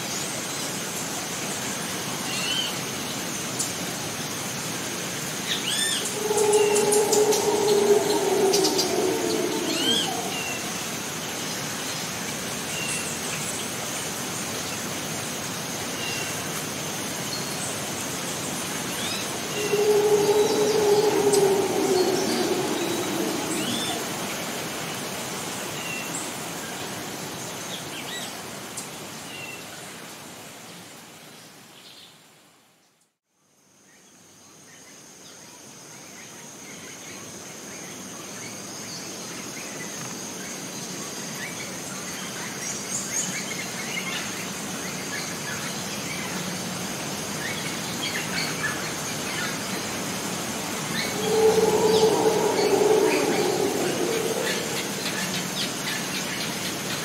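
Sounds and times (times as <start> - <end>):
rainforest hiss: 5.6 - 11.7, 18.4 - 27.7, 49.7 - 57.0
high-pitched whine: 6.0 - 11.4, 18.8 - 25.5, 50.8 - 56.2
pitched call or squeal: 6.1 - 11.0, 51.0 - 55.6.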